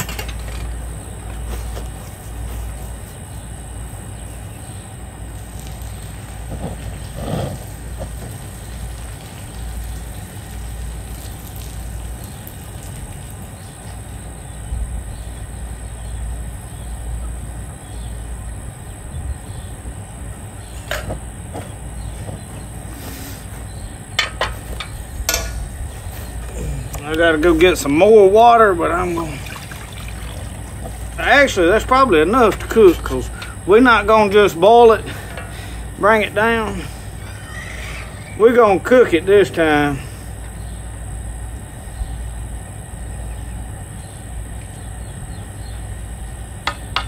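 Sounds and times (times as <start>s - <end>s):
water splashing from pot: 5.4s - 13.6s, 27.8s - 31.9s.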